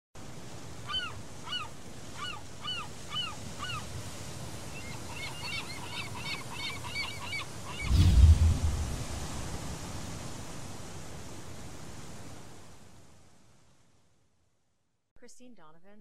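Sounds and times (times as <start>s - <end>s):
birds calling: 0.9s - 4.0s, 4.6s - 8.0s
deep low thump: 7.9s - 9.3s.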